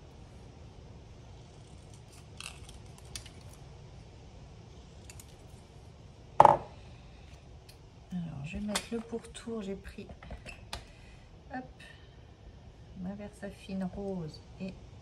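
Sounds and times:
low steady background hum: 0.0 - 15.0.

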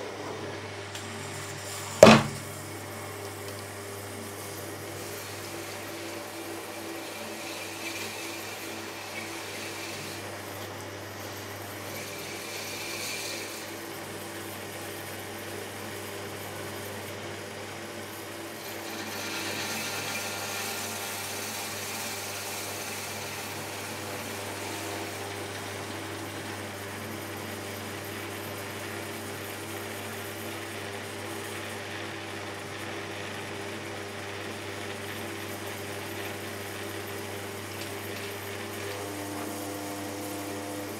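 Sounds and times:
potter's wheel motor humming: 0.0 - 40.9.

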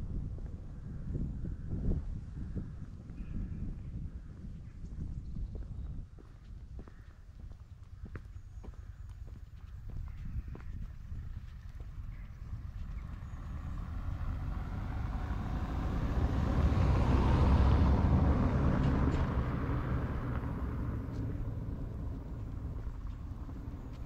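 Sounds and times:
motor vehicle driving past: 11.8 - 24.0.

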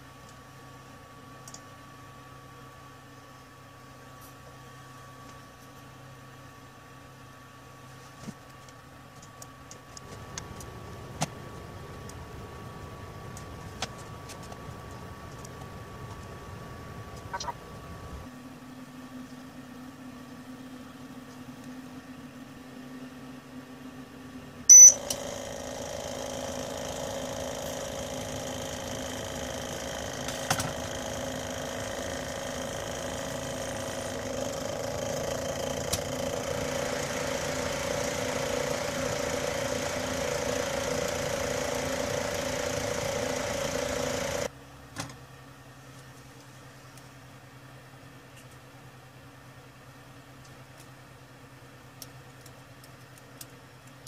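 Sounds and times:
short high beep: 24.7 - 25.0
small electric motor humming: 24.7 - 44.5.

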